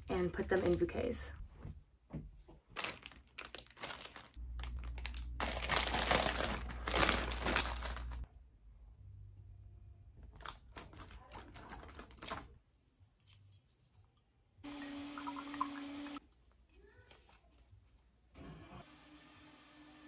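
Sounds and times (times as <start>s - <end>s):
plastic sleeve crinkling: 2.7s - 8.3s, 10.2s - 12.6s.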